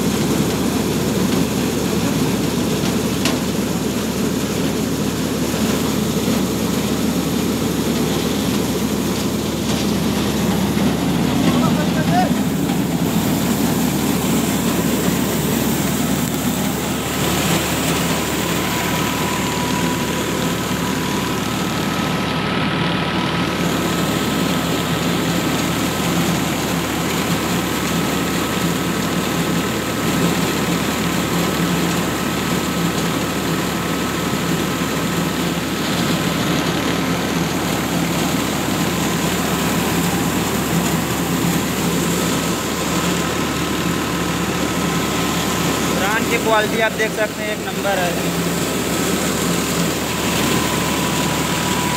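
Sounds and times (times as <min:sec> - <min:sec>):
diesel tractor engine: 0:00.0 - 0:51.9
rice mill machinery running: 0:00.0 - 0:51.9
faint steady whine: 0:36.9 - 0:51.9.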